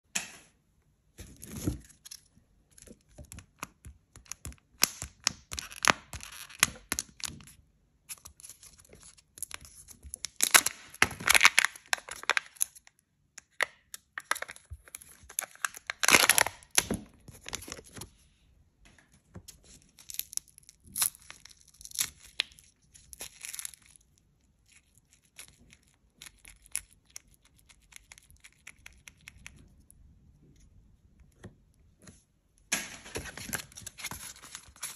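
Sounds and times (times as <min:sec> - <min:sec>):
foil wrapper crinkling and tearing: 0:08.1 - 0:12.9, 0:14.2 - 0:18.0, 0:19.8 - 0:29.4.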